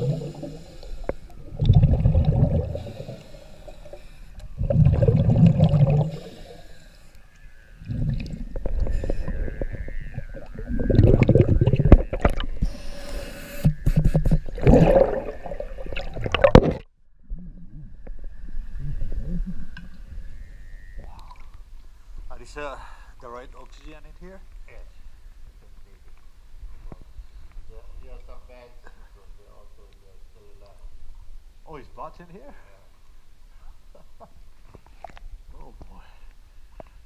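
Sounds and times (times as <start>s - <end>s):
breath bubbling from regulator underwater: 0.0s - 6.8s, 7.8s - 13.2s, 13.9s - 20.1s.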